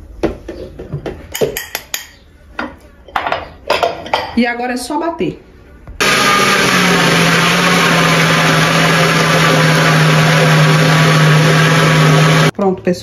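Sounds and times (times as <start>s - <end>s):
blender running: 6.0s - 12.5s.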